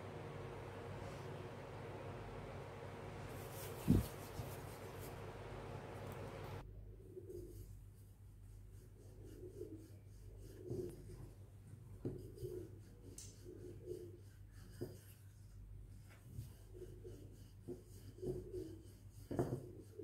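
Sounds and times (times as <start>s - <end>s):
rolling pin rubbing over dough: 3.2s - 5.5s, 12.0s - 20.0s.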